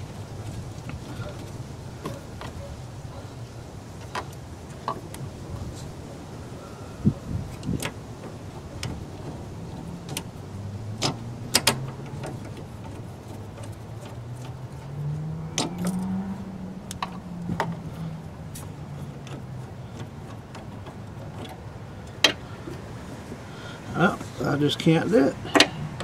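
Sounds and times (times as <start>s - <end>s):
metallic clicks and taps: 16.8s - 17.9s.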